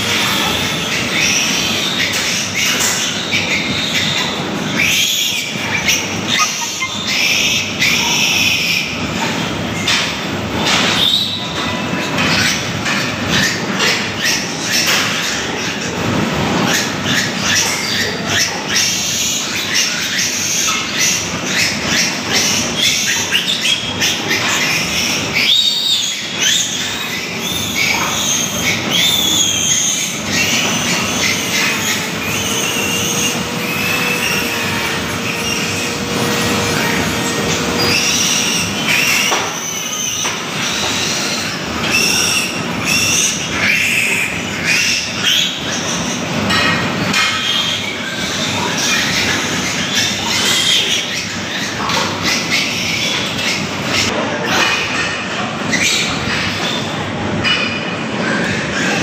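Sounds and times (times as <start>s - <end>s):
piglets squealing: 0.0s - 59.0s
steady hum: 30.1s - 39.0s.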